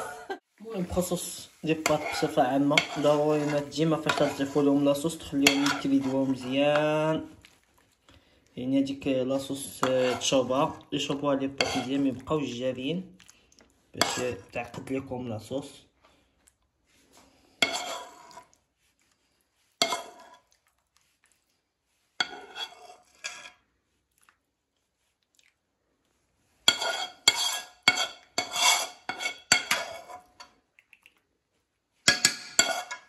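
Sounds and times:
metal spoon scraping frying pan: 0.9 - 7.3, 9.0 - 12.2, 14.0 - 15.1, 17.5 - 18.5, 19.8 - 20.5, 22.2 - 23.6, 26.6 - 30.6, 32.1 - 33.0.

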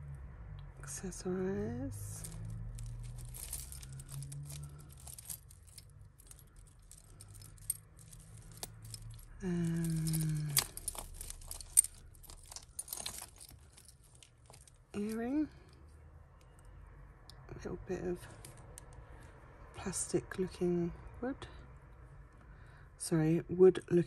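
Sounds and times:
jewellery chains clinking: 1.8 - 15.8.

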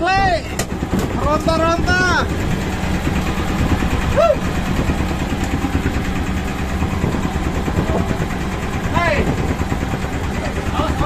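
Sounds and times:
boat engine running: 0.0 - 11.0
person exclaiming: 4.1 - 4.5.

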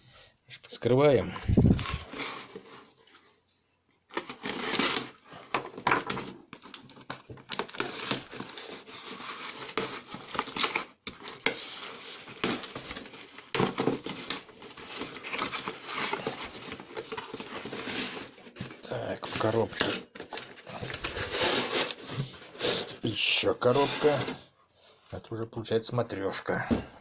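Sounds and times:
cardboard box being torn open: 4.2 - 5.2.

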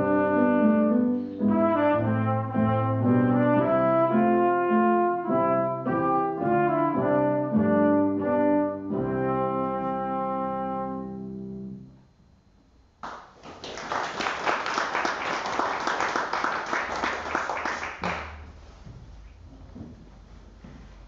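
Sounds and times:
applause: 13.0 - 18.4.

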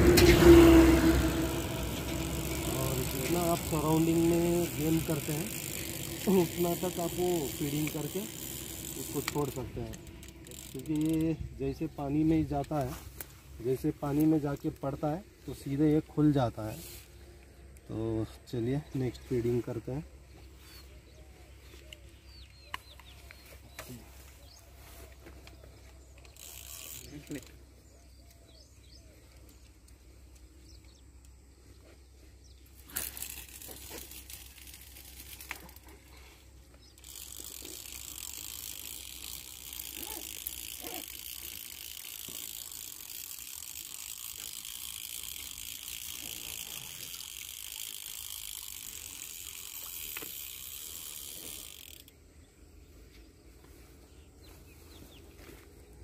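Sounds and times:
fishing reel whirring: 0.0 - 12.8, 24.4 - 28.5, 32.7 - 52.4.

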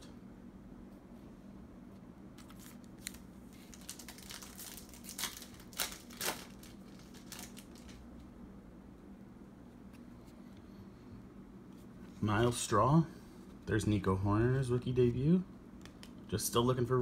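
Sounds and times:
plastic wrapper crinkling: 2.4 - 8.1.

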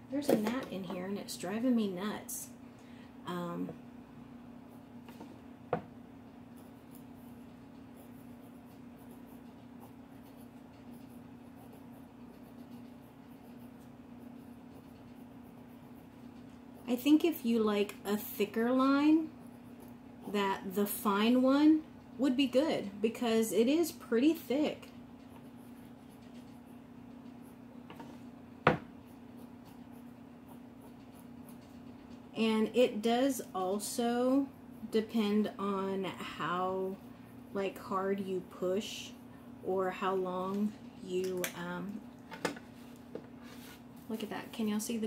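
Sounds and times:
steady low hum: 0.0 - 45.0
pen nib scratching on paper: 6.5 - 21.7, 22.5 - 27.6, 29.0 - 37.9.

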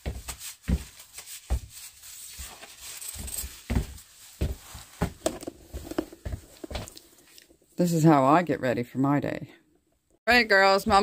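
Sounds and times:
clothing rustles: 0.0 - 7.6.

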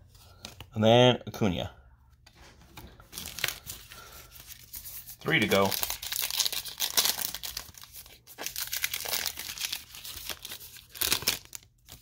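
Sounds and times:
wrapper tearing and crinkling: 5.2 - 12.0.

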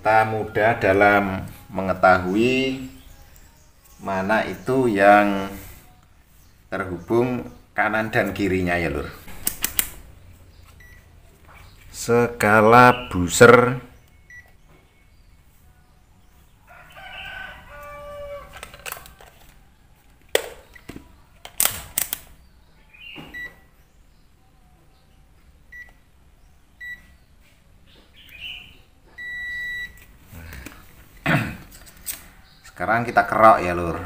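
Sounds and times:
multimeter beeps: 9.2 - 11.1, 14.0 - 14.6, 23.2 - 23.6, 25.7 - 26.0, 26.8 - 27.2, 29.2 - 30.0
probes clicking: 9.3 - 10.1
rooster crowing: 16.6 - 20.1.

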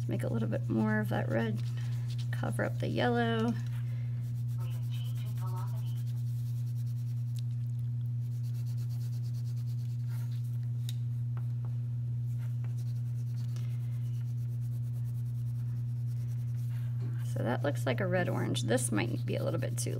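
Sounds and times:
steady low hum: 0.0 - 19.9
crayon scratching on paper: 4.2 - 7.3, 8.2 - 10.4, 12.7 - 16.8, 18.8 - 19.9.

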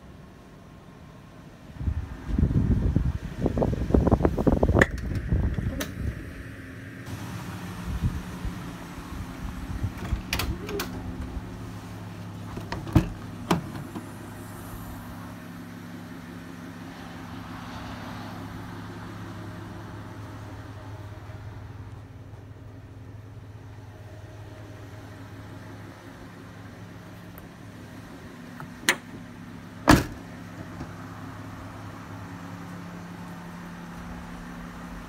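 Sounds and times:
liftgate latch clicks: 10.0 - 11.1, 28.6 - 29.2.

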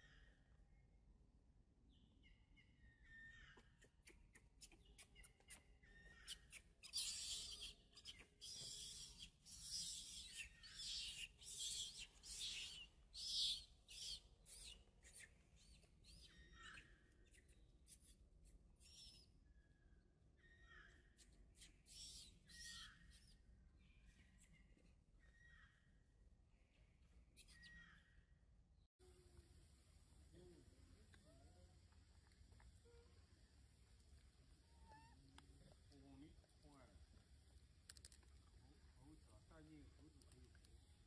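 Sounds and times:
infant monkey screaming: 34.7 - 35.2.

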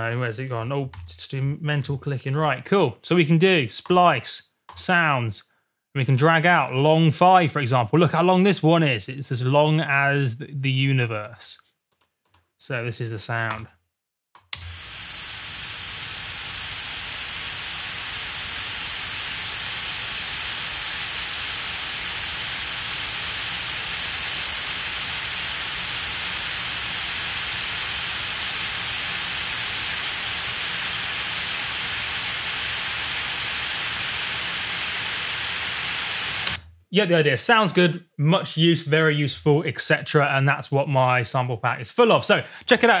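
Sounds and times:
white noise hiss: 14.7 - 36.6.

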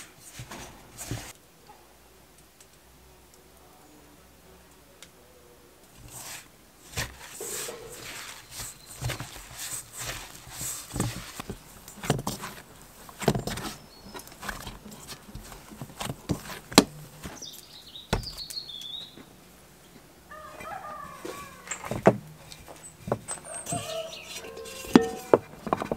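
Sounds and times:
dough squishing: 5.9 - 19.3, 20.3 - 25.9
farmyard fowl calling: 7.4 - 8.5, 20.3 - 21.9, 23.3 - 25.6
bird chirping: 7.4 - 9.4, 13.6 - 14.4, 16.9 - 21.9, 22.7 - 25.4.

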